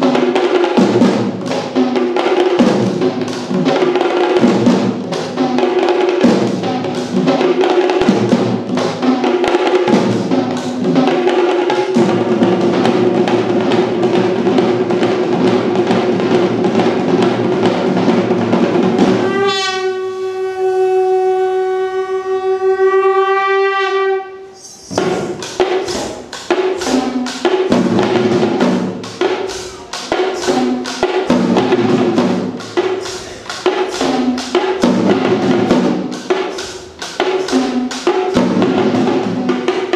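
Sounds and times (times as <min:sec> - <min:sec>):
drums played fast and hard: 0:00.0 - 0:20.5, 0:24.8 - 0:39.9
wind instrument long note: 0:19.2 - 0:24.9.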